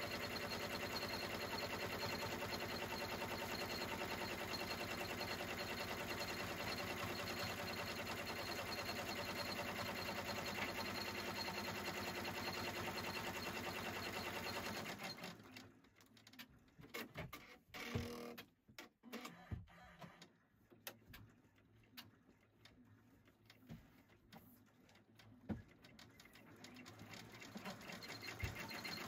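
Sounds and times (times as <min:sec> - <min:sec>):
embroidery machine stitching: 0:00.0 - 0:15.6, 0:25.8 - 0:29.0.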